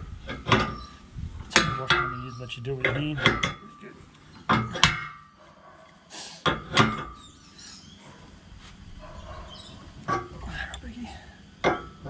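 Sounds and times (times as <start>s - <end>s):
wrench clanking on metal: 0.3s - 5.2s.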